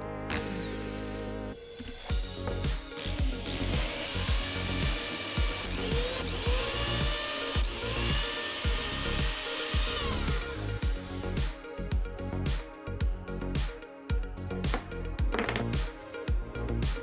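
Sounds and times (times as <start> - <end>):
cordless drill motor whine: 0.3 - 11.1.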